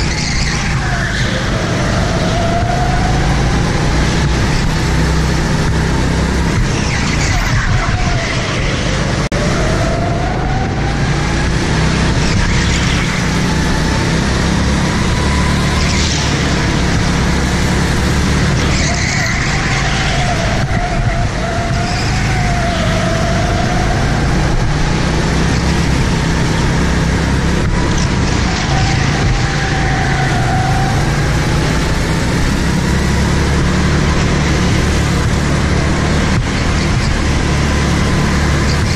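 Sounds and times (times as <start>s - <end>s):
go-kart motor: 0.0s - 38.9s.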